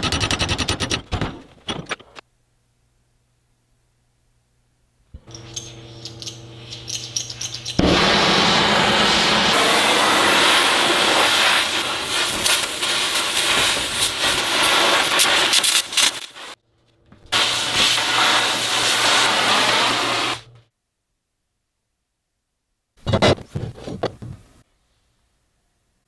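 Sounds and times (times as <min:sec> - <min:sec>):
low hum: 0:04.7 - 0:11.1
crackling: 0:07.6 - 0:16.6
torch flame hissing: 0:07.8 - 0:16.6, 0:17.3 - 0:20.4.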